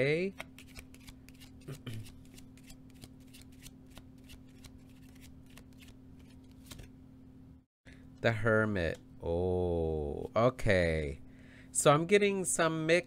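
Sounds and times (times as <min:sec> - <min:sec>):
cards being shuffled: 0:00.4 - 0:07.0.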